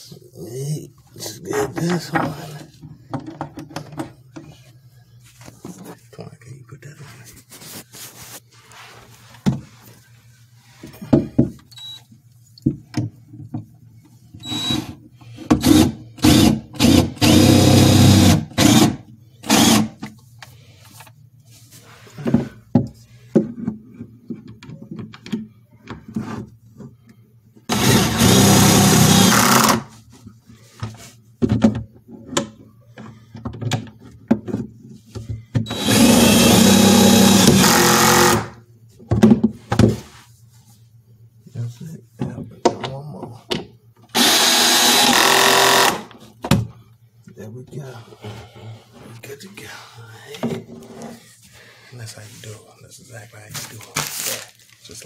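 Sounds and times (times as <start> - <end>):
cordless drill driving screws: 15.6 - 19.9, 27.7 - 29.8, 35.7 - 38.5, 44.1 - 46.1.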